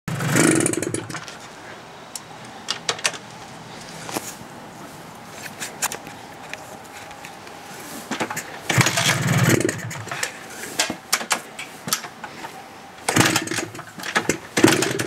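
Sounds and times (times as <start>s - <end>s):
motorcycle handling clicks: 8.2s - 12.2s.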